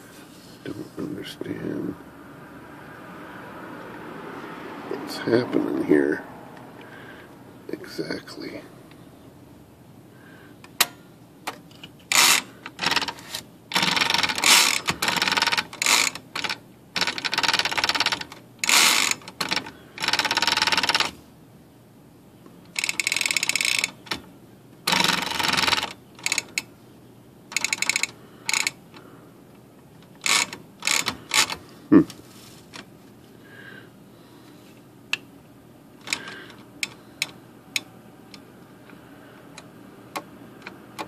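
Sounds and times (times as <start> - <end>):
typewriter carriage ratcheting: 12.1 - 21.2, 22.7 - 24.2, 24.9 - 26.6, 27.5 - 28.8, 30.1 - 31.6.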